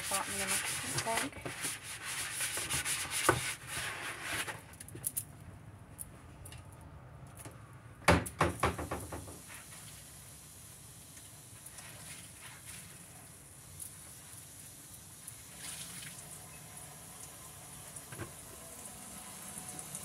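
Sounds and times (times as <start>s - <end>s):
scrubbing on plastic tub: 0.0s - 4.5s.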